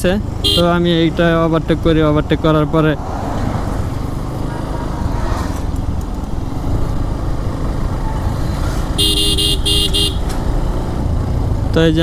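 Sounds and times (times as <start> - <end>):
road noise: 0.0 - 12.0
vehicle horn beeps: 0.4 - 0.8, 9.0 - 10.4
motorcycle engine running: 5.8 - 12.0.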